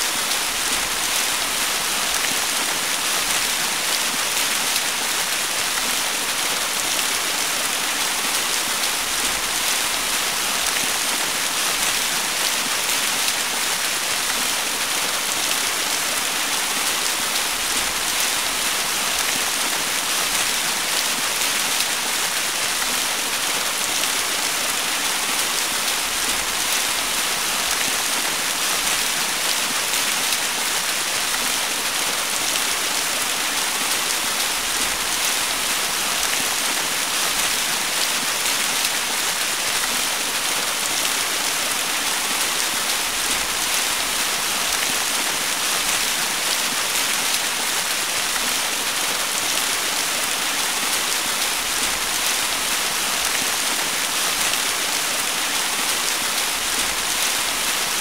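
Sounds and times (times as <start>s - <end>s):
small waterfall splashing: 0.0s - 58.0s.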